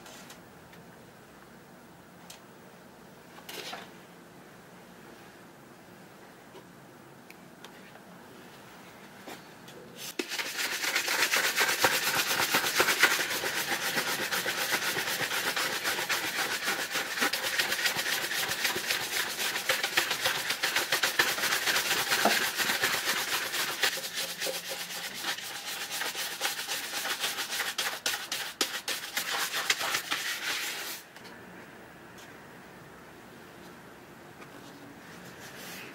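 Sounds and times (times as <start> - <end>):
shoe brush scrubbing leather: 10.1 - 31.0.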